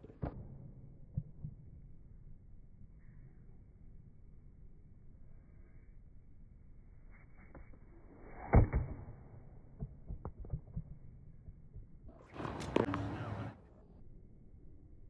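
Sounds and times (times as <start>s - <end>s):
tennis racket hitting ball: 12.4s - 13.4s.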